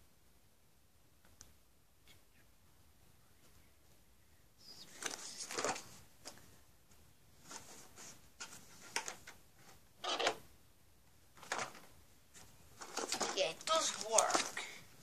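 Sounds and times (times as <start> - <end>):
box handling rustles and scrapes: 7.4 - 9.8, 11.4 - 14.7.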